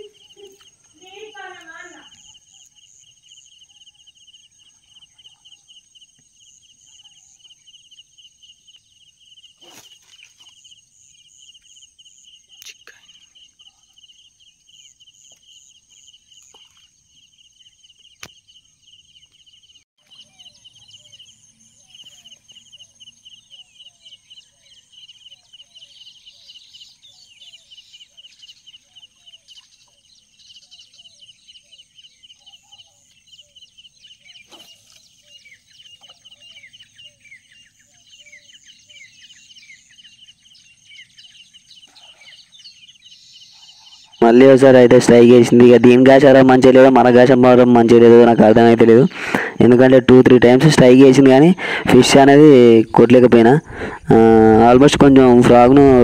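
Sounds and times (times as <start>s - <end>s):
low clucking calls: 48.0s - 56.0s.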